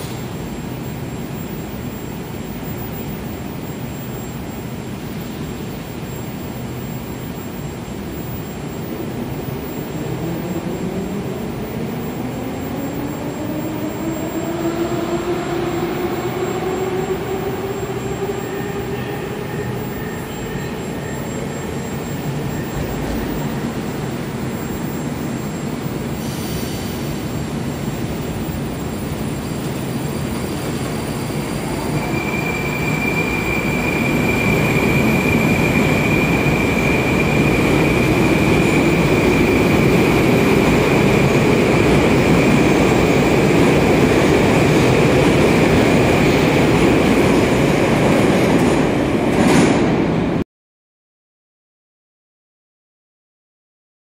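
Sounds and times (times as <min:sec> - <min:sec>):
steady high whine: 0:00.0 - 0:49.4.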